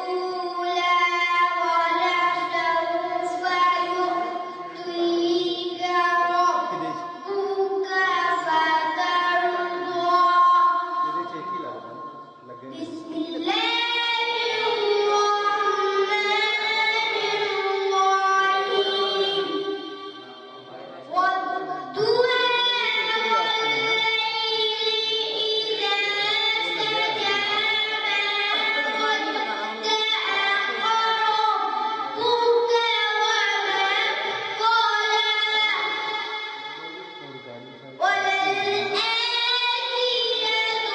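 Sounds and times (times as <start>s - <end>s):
boy singing: 0.0s - 40.9s.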